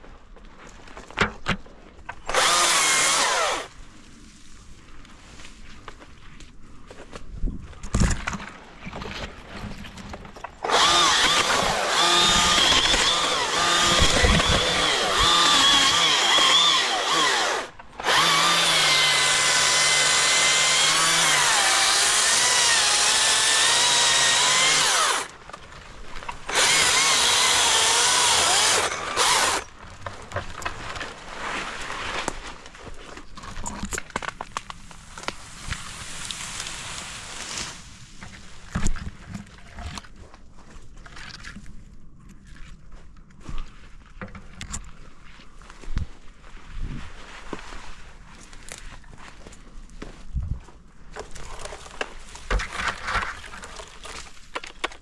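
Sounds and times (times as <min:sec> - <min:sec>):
battery chainsaw cutting wood: 0:02.2 - 0:03.7, 0:10.6 - 0:25.4, 0:26.4 - 0:29.7.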